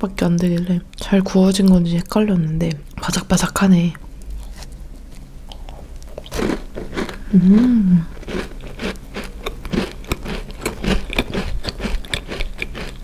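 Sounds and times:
crunchy cookie chewing: 3.9 - 13.0
person humming: 7.2 - 8.2.

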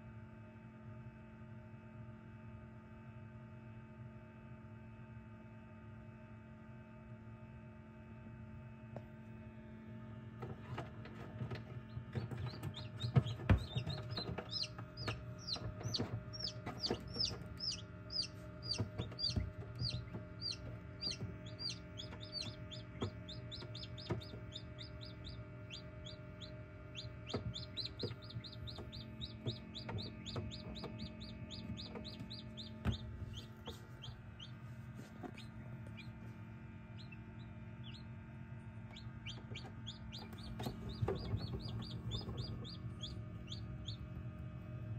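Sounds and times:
steady low hum: 7.0 - 44.9
chicks peeping: 10.6 - 44.8.

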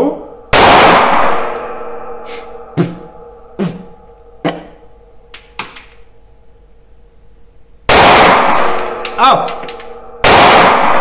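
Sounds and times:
gunshots with echo: 0.5 - 4.7, 7.9 - 11.0.

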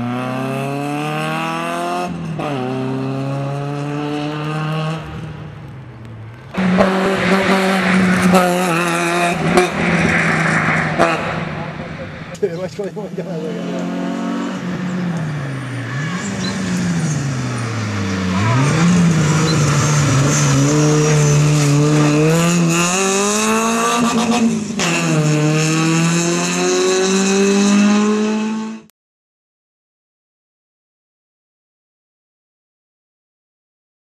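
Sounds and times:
car engine revving hard: 0.0 - 5.1, 6.6 - 12.2, 13.2 - 28.9.

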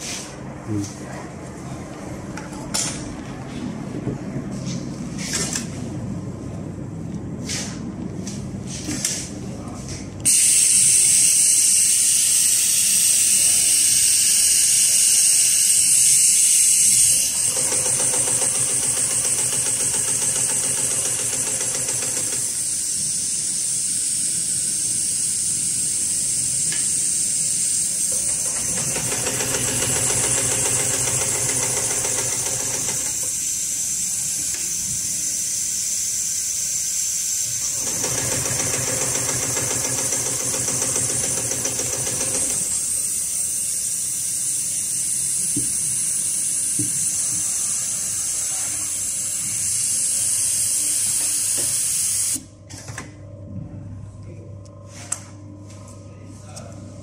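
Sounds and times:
industrial sewing machine stitching: 16.9 - 22.7, 28.1 - 33.3, 37.6 - 43.0.

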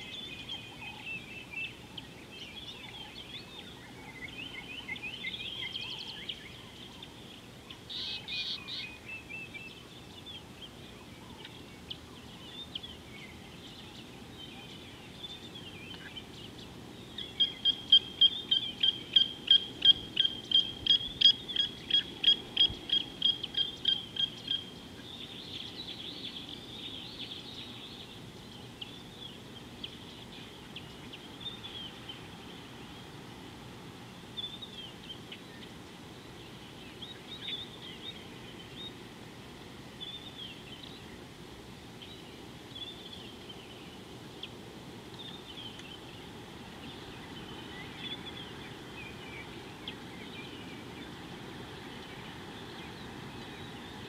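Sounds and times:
faint bird chirps: 0.0 - 33.2
steady background noise: 0.0 - 54.0.

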